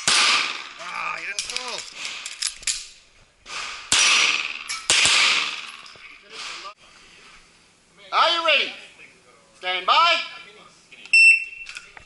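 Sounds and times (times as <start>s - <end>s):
pistol shots: 0.0s - 0.8s, 3.5s - 5.8s.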